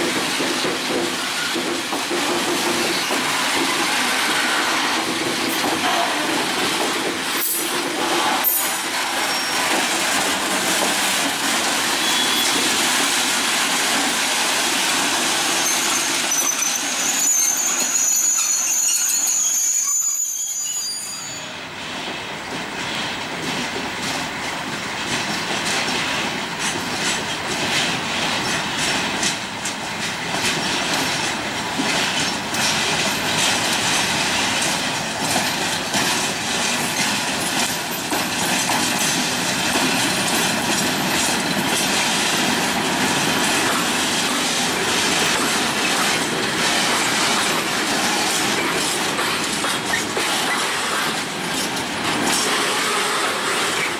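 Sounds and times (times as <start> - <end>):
train wheels clicking over rail joints: 0.0 - 17.6, 21.9 - 53.9
high wheel squeal: 8.5 - 9.6, 12.0 - 12.6, 15.6 - 21.6.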